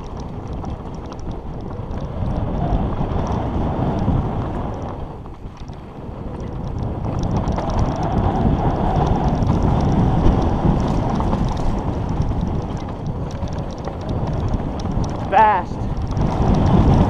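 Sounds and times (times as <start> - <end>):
bike rattles and clicks: 0.0 - 17.0
wind rushing over microphone: 0.0 - 17.0
tyres rolling over gravel: 4.1 - 17.0.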